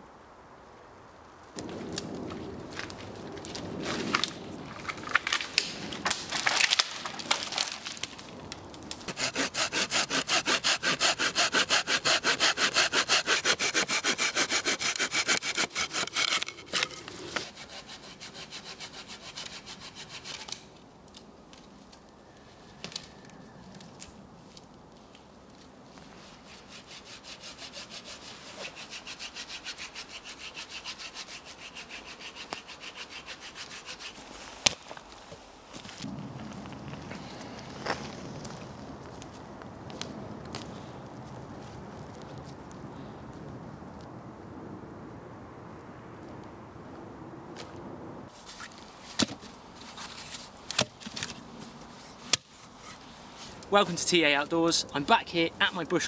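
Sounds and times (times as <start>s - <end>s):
dead wood cracking: 1.5s - 11.0s
hand saw cutting logs: 9.0s - 20.7s, 26.4s - 34.8s.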